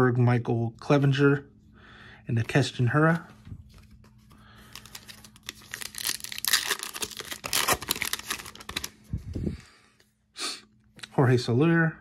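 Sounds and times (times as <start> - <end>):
foil wrapper tearing and crinkling: 4.7 - 8.9.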